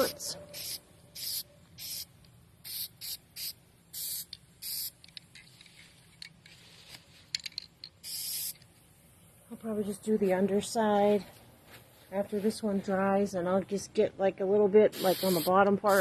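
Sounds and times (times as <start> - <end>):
spray paint can hissing: 0.0 - 6.0, 7.9 - 8.7, 14.9 - 16.0.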